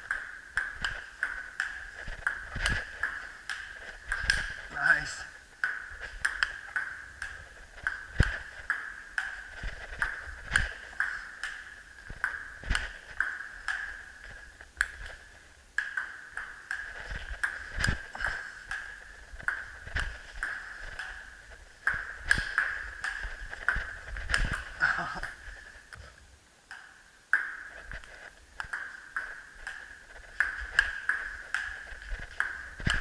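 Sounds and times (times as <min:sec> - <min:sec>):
ping-pong ball clicking: 0:00.0 - 0:25.5, 0:26.7 - 0:33.0.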